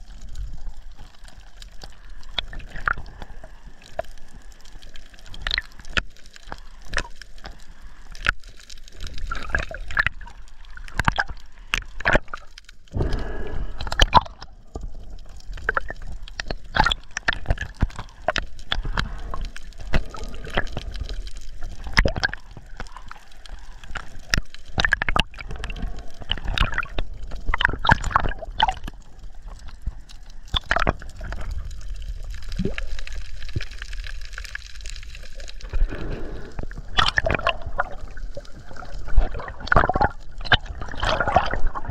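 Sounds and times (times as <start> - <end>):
water gurgling and sloshing: 0.0 - 41.9
sharp underwater clicks: 0.1 - 41.9
low underwater rumble: 12.8 - 41.9.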